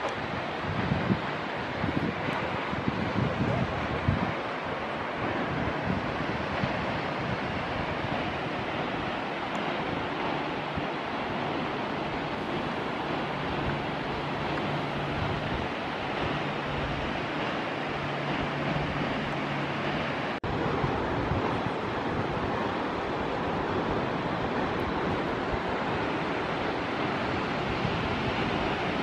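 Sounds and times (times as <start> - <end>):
wind on microphone: 0.0 - 29.0.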